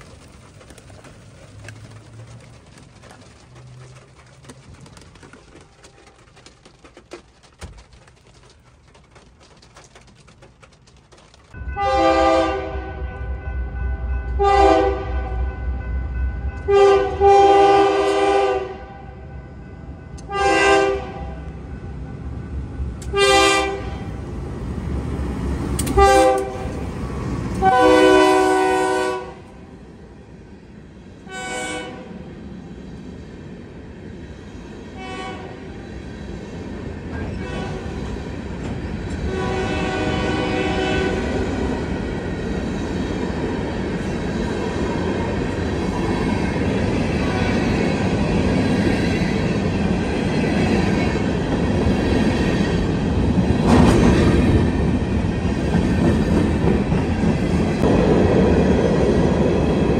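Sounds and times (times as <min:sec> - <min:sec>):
train cars rumbling past: 0:00.0 - 0:07.6, 0:10.4 - 0:59.9
wheel clatter: 0:00.0 - 0:11.6
locomotive horn blasts: 0:11.7 - 0:13.4, 0:14.4 - 0:15.5, 0:16.7 - 0:19.2, 0:20.2 - 0:21.4, 0:23.1 - 0:24.1, 0:25.9 - 0:26.8, 0:27.6 - 0:29.6, 0:31.3 - 0:32.1, 0:35.0 - 0:35.6, 0:39.3 - 0:41.3.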